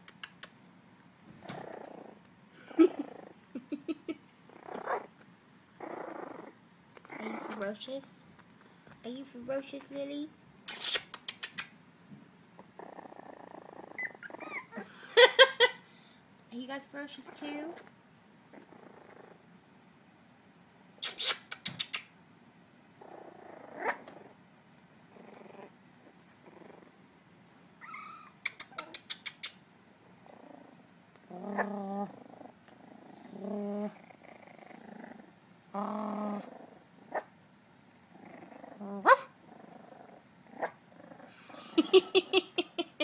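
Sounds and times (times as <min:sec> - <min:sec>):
puppies growling and yipping: 0:01.4 - 0:03.7, 0:04.4 - 0:05.2, 0:05.8 - 0:07.8, 0:12.6 - 0:15.5, 0:18.5 - 0:19.5, 0:23.0 - 0:24.4, 0:25.0 - 0:27.0, 0:27.8 - 0:37.3, 0:38.0 - 0:42.6
puppy yelp: 0:14.0 - 0:14.8, 0:27.8 - 0:29.0.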